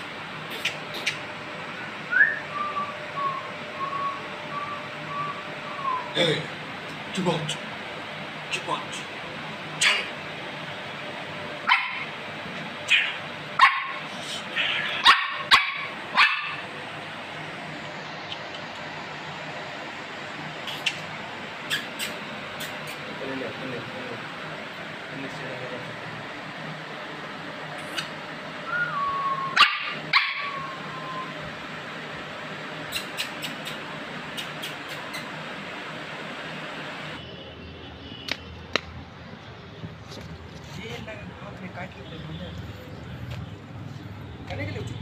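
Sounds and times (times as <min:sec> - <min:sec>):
small dog yapping: 0:11.7 - 0:12.1, 0:12.8 - 0:14.0, 0:14.6 - 0:16.7, 0:29.5 - 0:30.8
small dog whining: 0:28.8 - 0:31.4.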